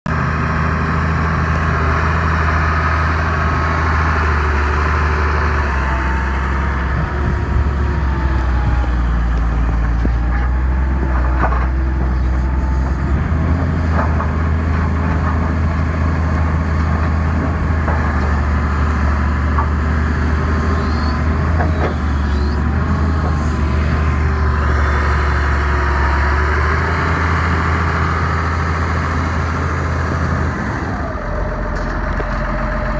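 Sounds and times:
diesel excavator engine running: 0:00.1 - 0:32.9
hydraulic whine: 0:19.6 - 0:26.6.

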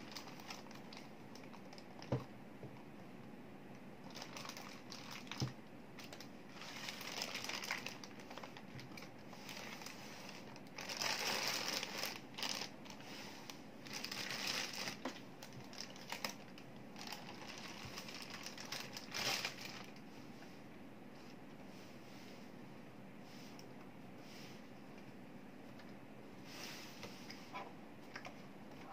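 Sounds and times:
plastic wrap crinkling: 0:00.0 - 0:02.3, 0:04.1 - 0:20.0.

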